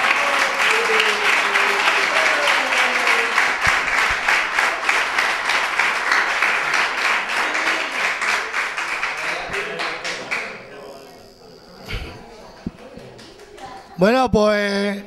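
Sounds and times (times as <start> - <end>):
audience applauding: 0.0 - 14.0
voices: 6.6 - 15.0.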